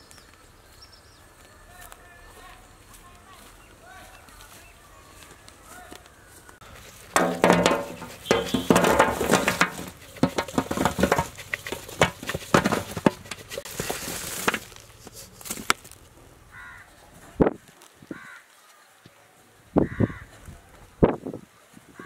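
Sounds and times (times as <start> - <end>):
dried fish clattering on steel tray: 7.0 - 14.8
crow cawing faintly: 16.5 - 17.1, 18.1 - 18.9, 19.8 - 20.5.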